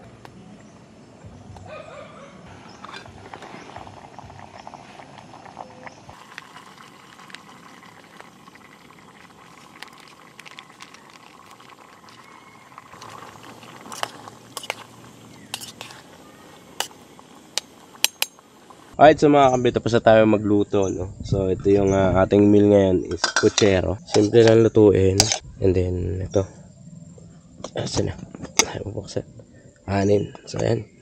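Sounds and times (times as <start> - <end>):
gas burner hissing: 2.7 - 19.0
stew bubbling in a pot: 2.8 - 19.0
sauce pouring: 3.1 - 18.9.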